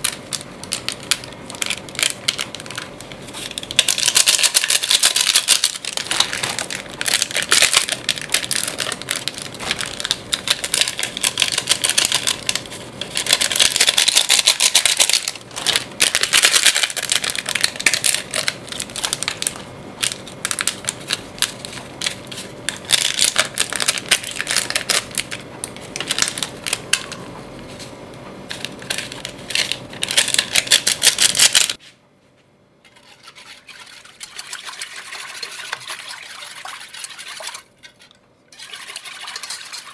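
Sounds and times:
foil sachets crinkling: 0:00.0 - 0:27.2, 0:28.5 - 0:31.8.

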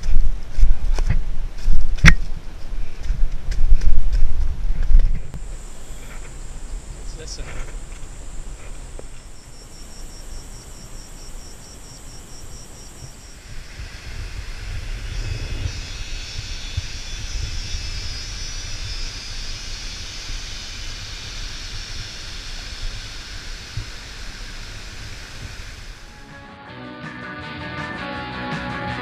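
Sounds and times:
wind rumble on microphone: 0:00.0 - 0:09.5, 0:10.4 - 0:26.1
steady high hiss: 0:01.6 - 0:26.6
insect high pulsing call: 0:05.4 - 0:26.3.

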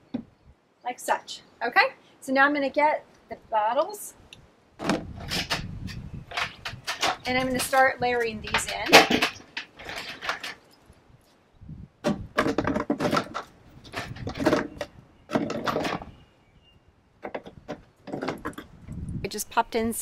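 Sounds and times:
plastic bottles clattering: 0:06.3 - 0:10.6, 0:12.3 - 0:16.2.

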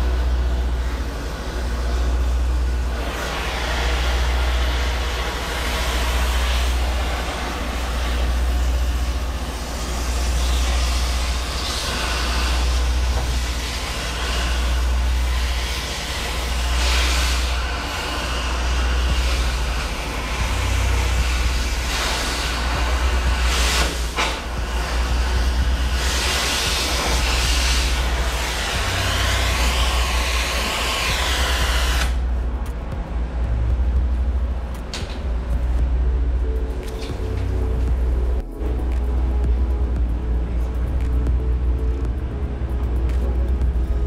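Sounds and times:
cutting torch hissing: 0:00.0 - 0:32.3
low rumble: 0:00.0 - 0:44.0.

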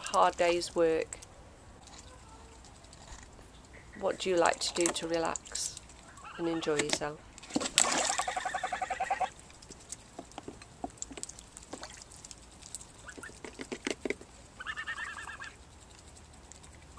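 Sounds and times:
goose splashing in water: 0:03.8 - 0:16.9
geese calling: 0:06.0 - 0:06.8, 0:08.0 - 0:09.3, 0:14.6 - 0:15.6.

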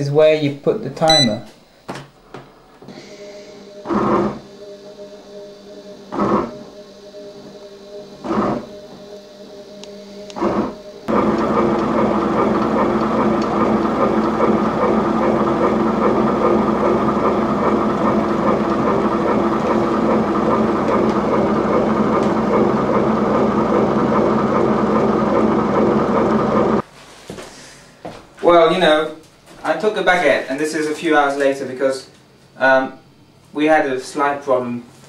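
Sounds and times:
bread machine motor droning: 0:02.1 - 0:26.8.

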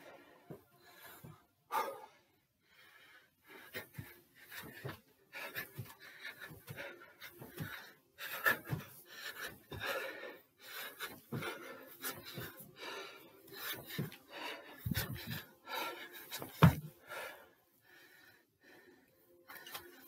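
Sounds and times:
man panting: 0:00.0 - 0:20.0
feet thudding on steps: 0:03.8 - 0:10.0, 0:11.0 - 0:12.7, 0:13.6 - 0:14.2, 0:14.8 - 0:15.5, 0:16.3 - 0:17.2.

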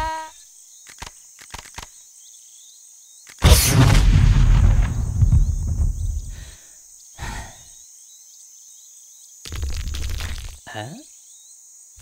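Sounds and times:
low rumble of cartoon blast: 0:03.4 - 0:06.5
faint high chirping: 0:10.4 - 0:12.0.

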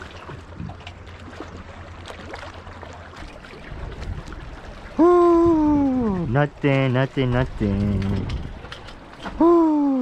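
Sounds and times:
waves lapping against rocks: 0:00.0 - 0:09.8
wind rumbling on microphone: 0:03.3 - 0:10.0.

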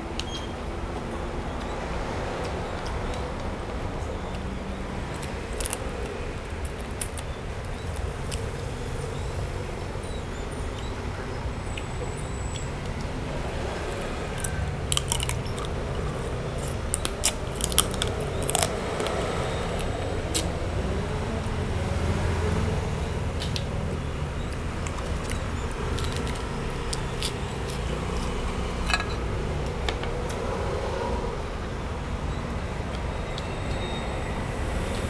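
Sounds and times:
chewing with cracks: 0:05.1 - 0:08.6, 0:13.8 - 0:20.5, 0:24.5 - 0:28.9.

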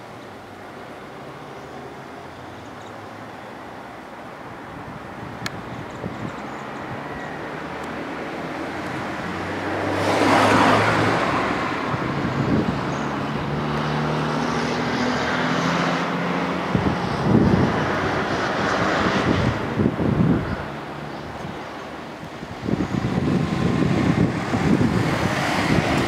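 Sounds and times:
motor vehicle passing: 0:07.0 - 0:26.0.

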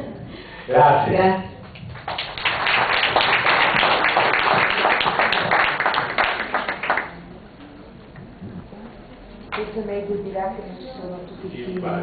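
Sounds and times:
audience applauding: 0:01.7 - 0:07.3.

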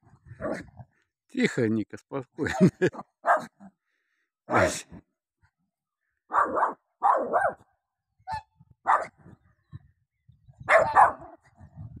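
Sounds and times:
dog barking: 0:03.2 - 0:03.6, 0:06.3 - 0:07.6, 0:08.3 - 0:09.2, 0:10.7 - 0:11.4.

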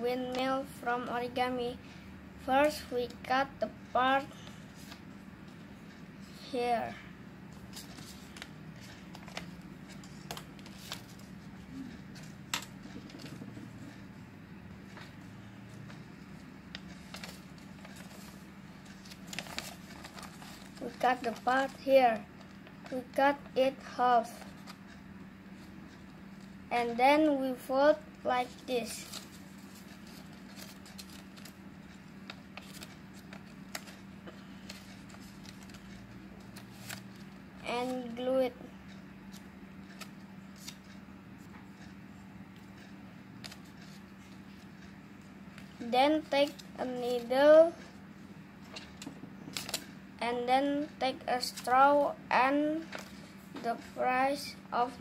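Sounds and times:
low steady hum: 0:00.0 - 0:55.0
paper rustling and crinkling: 0:07.6 - 0:11.5, 0:16.7 - 0:21.8, 0:28.8 - 0:31.6, 0:32.2 - 0:38.0, 0:48.7 - 0:49.9, 0:52.8 - 0:53.3.

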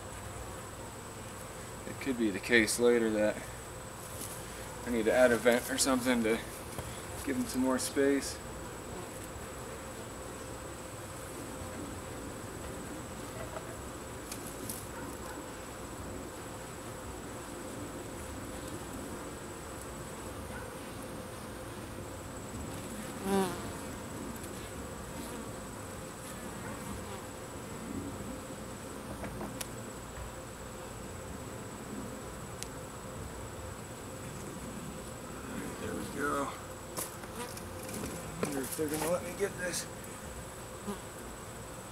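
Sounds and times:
bees buzzing: 0:00.6 - 0:41.9
bee buzzing close by: 0:03.4 - 0:41.9.

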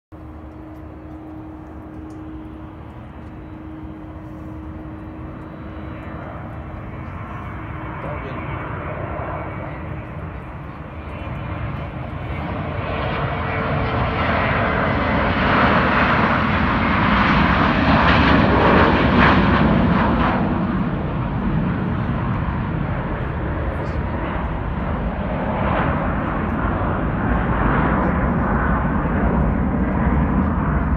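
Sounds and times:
jet airliner taking off: 0:00.2 - 0:30.9.

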